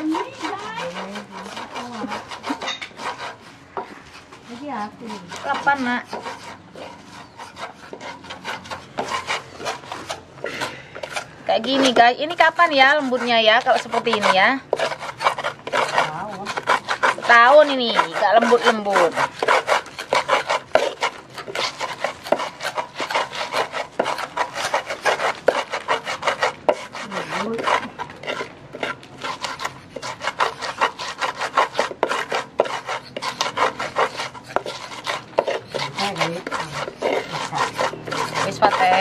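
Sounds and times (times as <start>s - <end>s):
pestle grinding in clay mortar: 0.0s - 39.0s.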